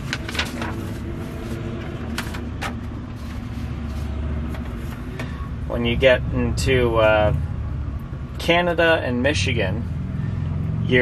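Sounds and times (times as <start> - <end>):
paper rustling: 0.0 - 5.1
diesel engine idling: 0.0 - 11.0.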